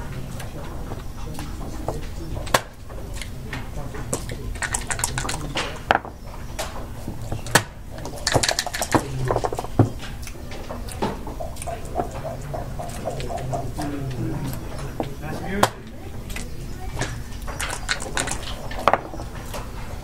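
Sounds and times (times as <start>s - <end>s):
plastic checkers clacking on board: 0.9s - 6.7s, 7.3s - 19.6s
dice rattling: 4.5s - 6.1s, 8.1s - 9.7s, 17.6s - 19.1s.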